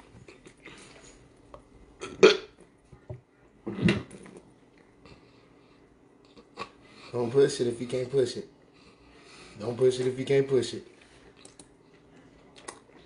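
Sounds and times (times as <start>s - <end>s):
man burping: 2.0s - 2.5s.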